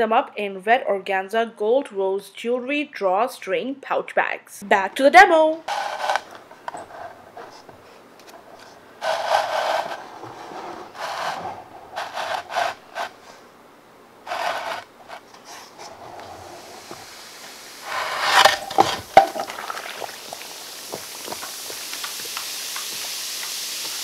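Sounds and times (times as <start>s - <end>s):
bar scraping on wooden board: 5.7s - 7.6s, 8.6s - 13.3s, 14.2s - 17.1s, 17.8s - 19.5s.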